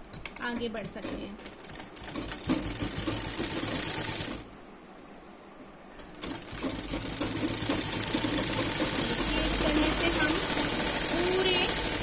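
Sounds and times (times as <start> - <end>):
sewing machine stitching: 0.8 - 4.4, 6.1 - 12.0.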